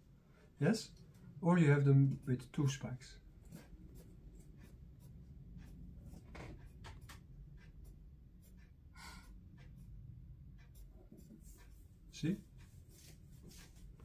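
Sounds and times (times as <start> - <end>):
pencil scratching on paper: 3.1 - 14.0.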